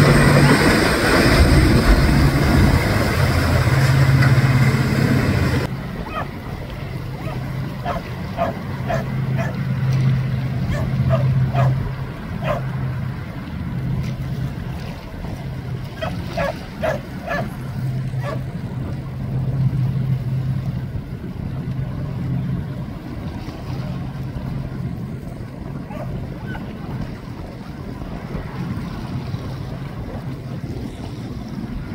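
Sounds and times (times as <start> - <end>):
boat engine droning: 0.0 - 31.9
dog barking: 6.1 - 6.3, 7.2 - 9.6, 10.7 - 11.8, 12.4 - 12.7, 16.0 - 17.5, 18.2 - 18.4, 25.9 - 26.6.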